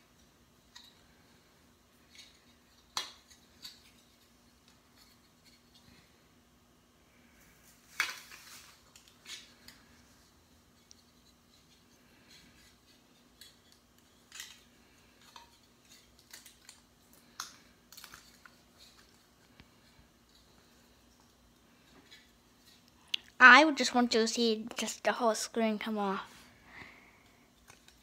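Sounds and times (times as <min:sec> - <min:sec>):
plastic parts clicking and scraping: 0:27.5 - 0:28.0.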